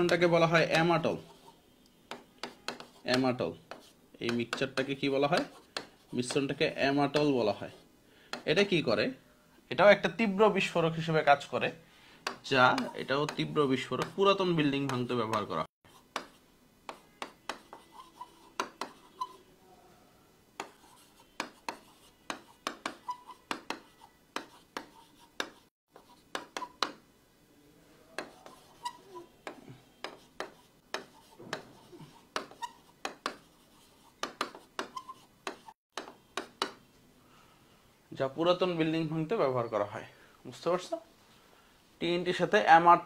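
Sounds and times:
marker pen writing on whiteboard: 0.0 - 8.7, 12.2 - 19.5, 20.6 - 27.0, 28.1 - 36.8.

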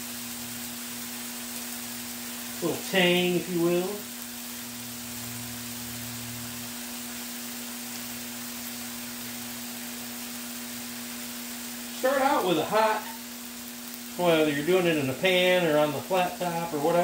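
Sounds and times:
food sizzling: 0.0 - 17.0.

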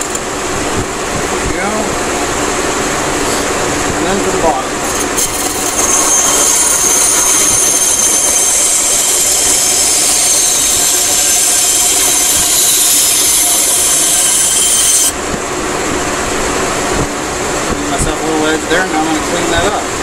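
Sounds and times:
band saw cutting wood: 4.8 - 15.2.

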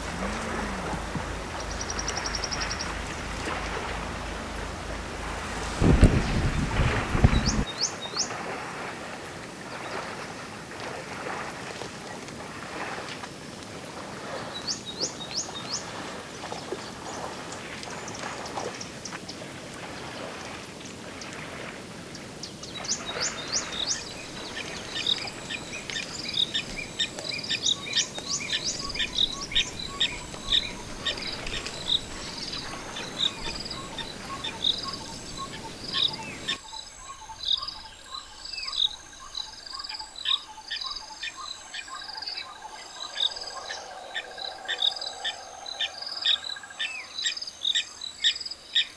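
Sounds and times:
birds chirping: 0.0 - 8.4, 22.4 - 48.9
elephants wading through water: 0.0 - 48.9
insects trilling: 0.0 - 48.9
river water wash: 0.0 - 48.9.

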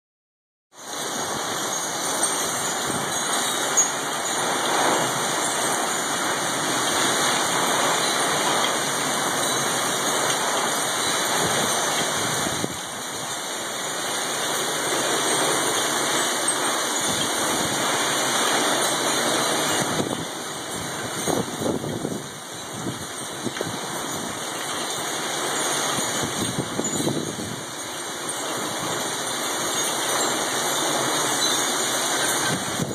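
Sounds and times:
heavy rain pouring: 0.8 - 32.9.

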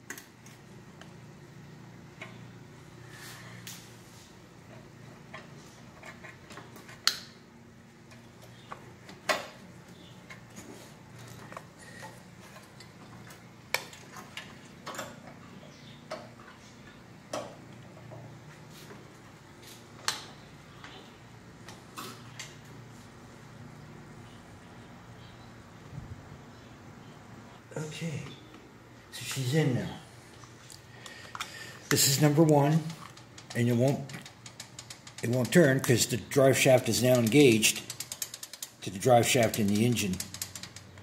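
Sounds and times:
small metal clicks and clinks: 36.9 - 41.0.

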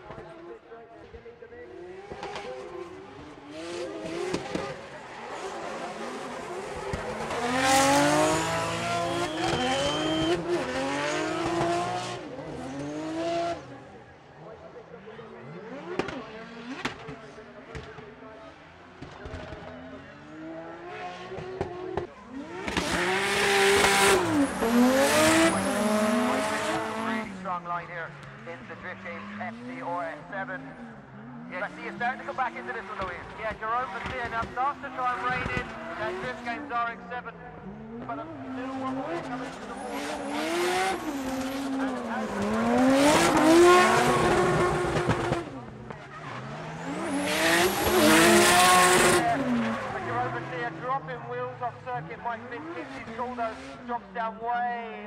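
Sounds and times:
car engine revving: 1.6 - 14.5, 15.4 - 53.9
tyres screeching: 22.8 - 27.3.

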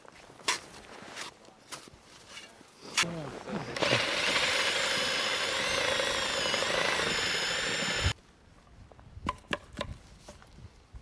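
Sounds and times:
power drill motor whine: 3.8 - 8.2.

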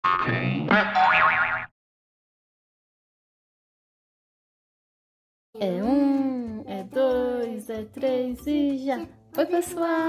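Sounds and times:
springy cartoon boing: 0.0 - 1.7.

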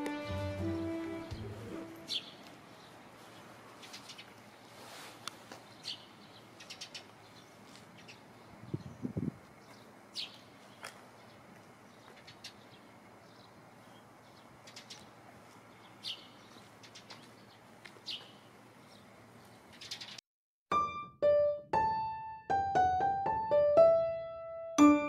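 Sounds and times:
slow piano melody: 0.0 - 2.2, 20.7 - 25.0
sparrows chirping: 1.3 - 4.9, 5.6 - 20.2.

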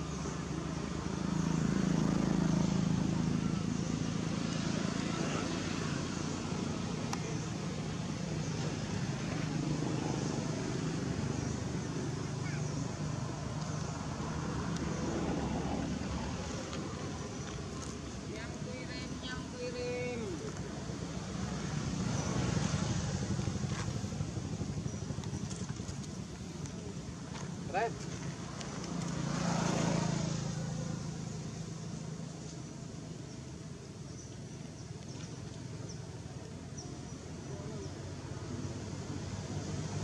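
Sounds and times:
vehicle engine rumble passing: 0.0 - 40.0.

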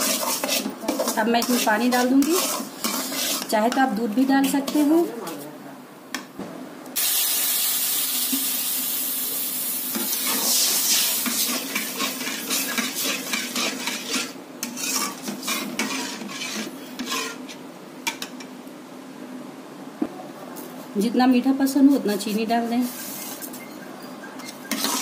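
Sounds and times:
spatula scraping a metal pan: 0.0 - 5.0, 9.9 - 18.2, 22.0 - 25.0
water sizzling in hot oil: 7.0 - 16.5.

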